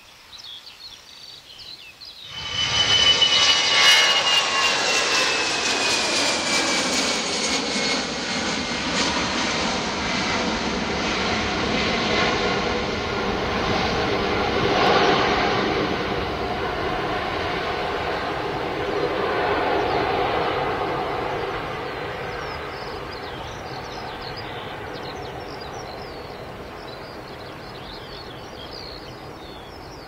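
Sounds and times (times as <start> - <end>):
jet engine roar: 2.2 - 30.0
falling whining tone: 2.3 - 8.0.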